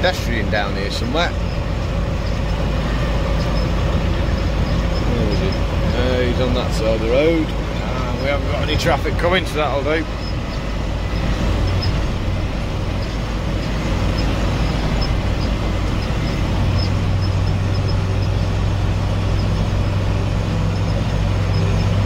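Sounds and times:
tractor diesel engine from cab: 0.0s - 22.0s.

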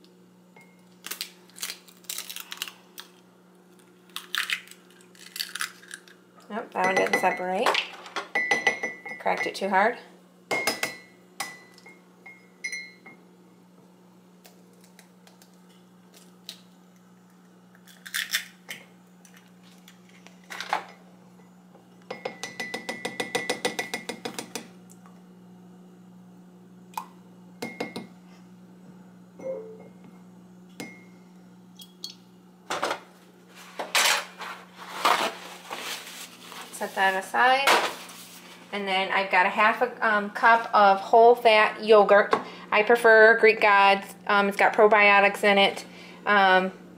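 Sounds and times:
spoon clinking against ceramic mug: 8.4s - 9.5s, 22.1s - 24.1s.

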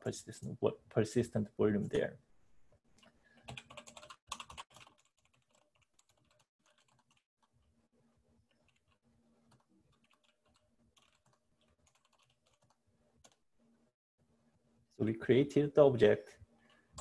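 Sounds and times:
keyboard typing: 3.0s - 7.5s, 8.5s - 13.4s.

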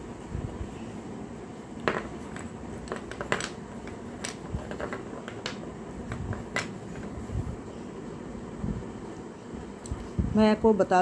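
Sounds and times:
clay pot pieces clicking: 1.9s - 7.1s.

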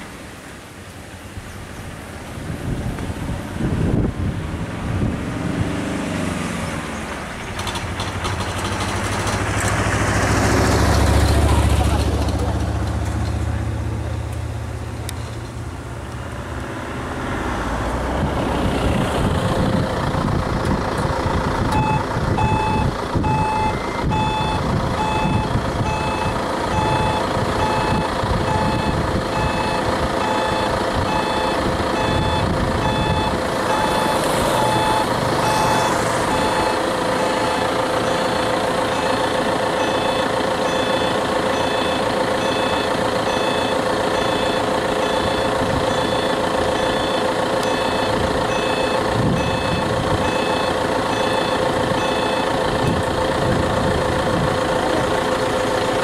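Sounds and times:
vehicle engine running: 2.6s - 56.0s
reversing alarm beeping: 21.8s - 39.2s, 39.8s - 53.0s.

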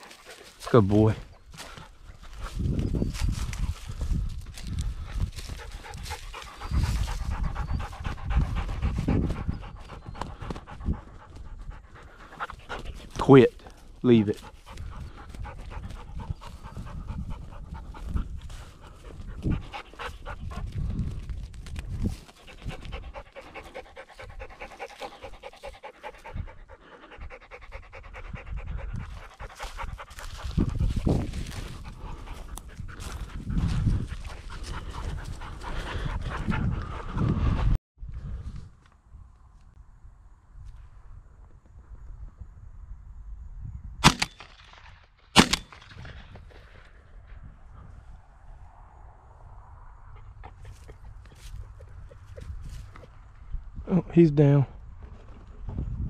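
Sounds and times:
dog panting rapidly: 0.0s - 2.6s, 3.2s - 21.3s, 22.0s - 37.8s.

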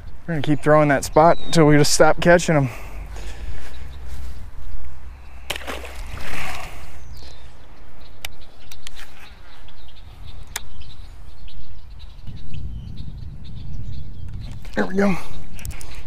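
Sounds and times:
fishing lure splashing in water: 5.5s - 6.7s.

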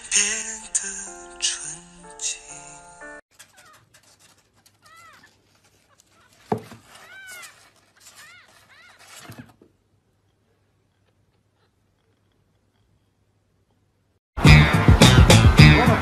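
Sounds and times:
light scratching and rustling: 3.3s - 13.1s
kitten mewing: 4.8s - 9.4s.

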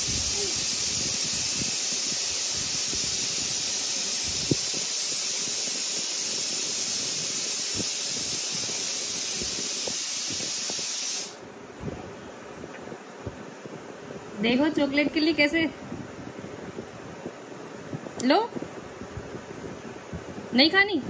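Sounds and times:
loud steady hiss: 0.0s - 11.9s.

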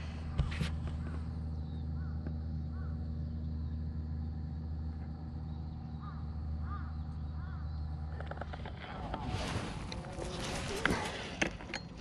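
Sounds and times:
steady low hum: 0.0s - 12.0s
crow cawing: 2.0s - 3.0s, 6.0s - 7.7s.

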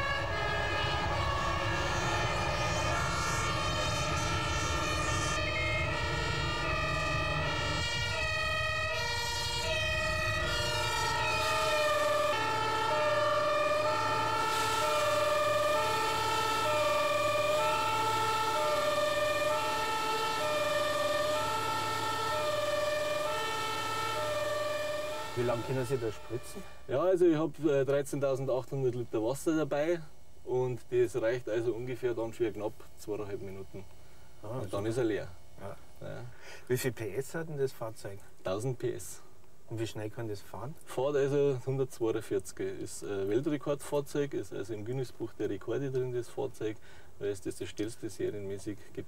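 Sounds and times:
truck engine rumble: 0.0s - 27.0s
two-tone sirens: 0.0s - 32.2s.

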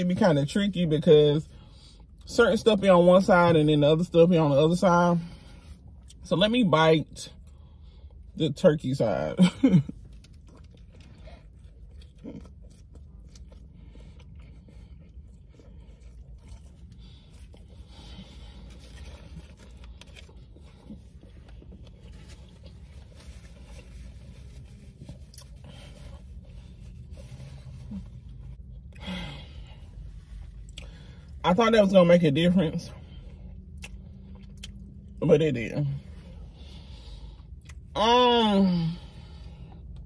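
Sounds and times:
person chewing food: 9.8s - 29.1s, 29.8s - 31.4s, 33.2s - 35.2s.

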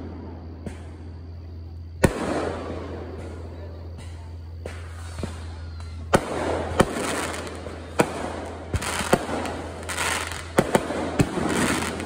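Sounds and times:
firework shells bursting: 4.3s - 12.0s.

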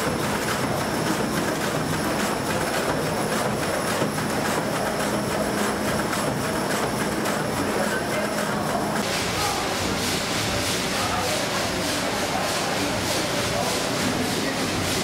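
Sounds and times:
steam engine mechanical knocks: 0.0s - 15.0s
continuous steam hiss: 7.4s - 15.0s.

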